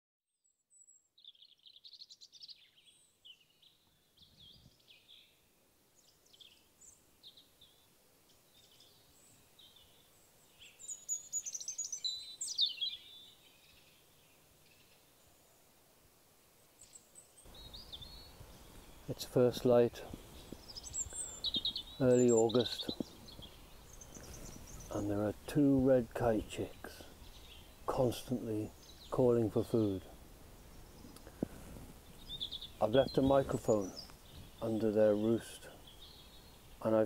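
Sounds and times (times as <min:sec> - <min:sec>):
birds chirping and whistling: 0:10.6 - 0:13.8, 0:16.9 - 0:25.2, 0:26.4 - 0:30.0, 0:30.7 - 0:37.0.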